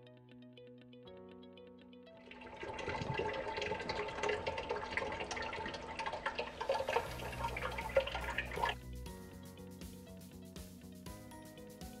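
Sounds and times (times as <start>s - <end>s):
water pouring from carafe: 2.3s - 8.8s.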